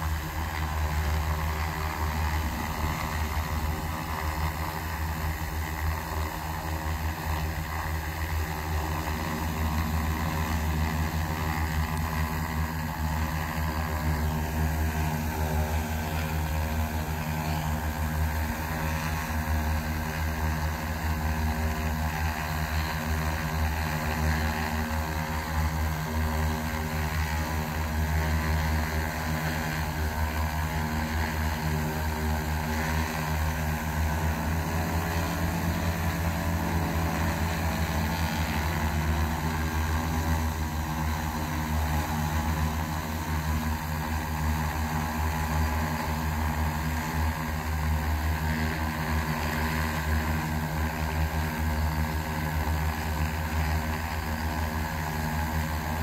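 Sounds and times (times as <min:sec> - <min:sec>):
drone propellers hovering: 0:00.0 - 0:56.0.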